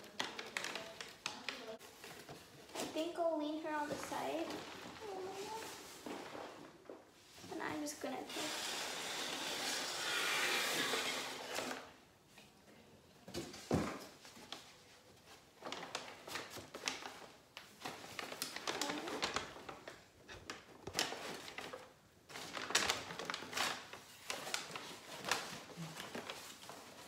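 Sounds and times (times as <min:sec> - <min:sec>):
paper wrapping crinkling: 0:00.0 - 0:06.9, 0:14.2 - 0:27.0.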